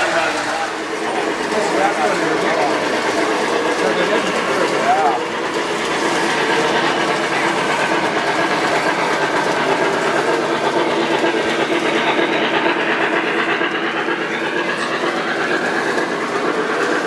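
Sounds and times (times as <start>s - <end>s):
metal wheels rolling on rails: 0.0s - 17.0s
model train motor hum: 0.0s - 17.0s.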